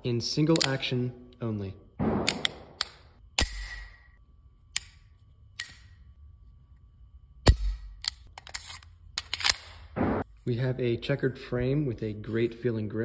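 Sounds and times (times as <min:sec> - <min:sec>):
metal clicks and clacks of gun: 0:00.5 - 0:00.8, 0:02.0 - 0:03.9, 0:07.6 - 0:09.8
pistol slide scraping: 0:08.0 - 0:09.8.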